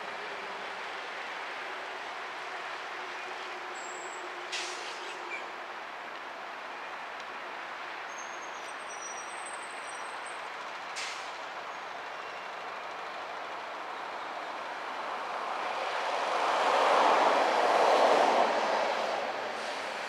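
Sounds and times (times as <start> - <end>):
road traffic hiss: 0.0 - 20.0
short sharp hisses: 4.5 - 5.2.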